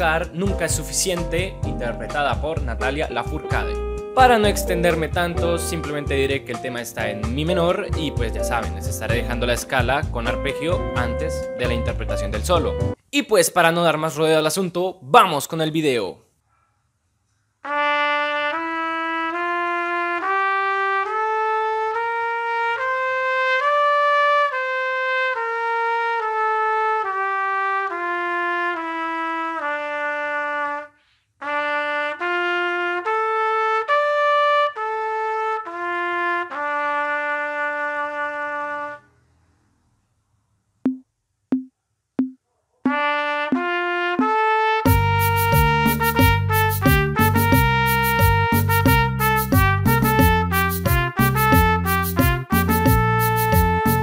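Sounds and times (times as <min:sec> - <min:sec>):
solo trumpet playing scales: 0:17.6 - 0:39.1, 0:42.9 - 0:54.0.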